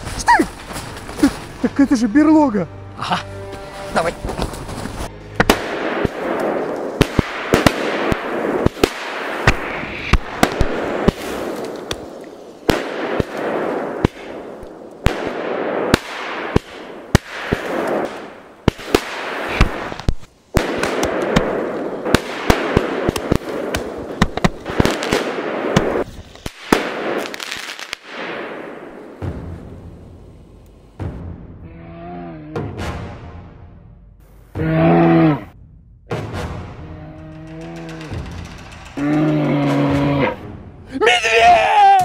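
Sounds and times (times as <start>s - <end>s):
firecracker bangs and pops: 5.4s - 30.1s
fireworks hissing crackle: 6.4s - 12.9s.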